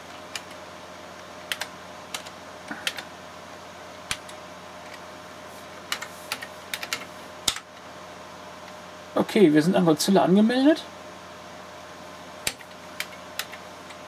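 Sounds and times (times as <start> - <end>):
steady background hum: 0.0 - 14.0
computer keyboard key presses: 1.5 - 3.0.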